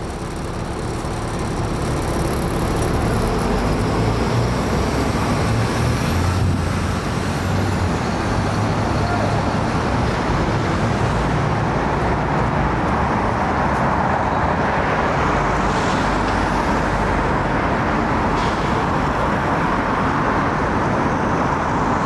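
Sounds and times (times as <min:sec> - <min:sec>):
road traffic hum: 0:00.0 - 0:22.0.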